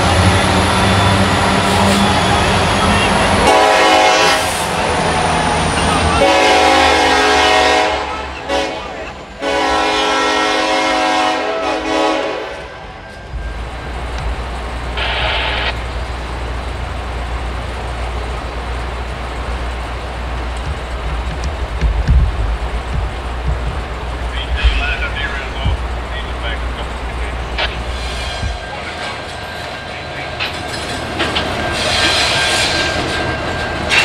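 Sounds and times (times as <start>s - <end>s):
diesel engine rumble: 0.0s - 34.0s
locomotive air horn blasts: 3.0s - 4.8s, 6.2s - 12.9s.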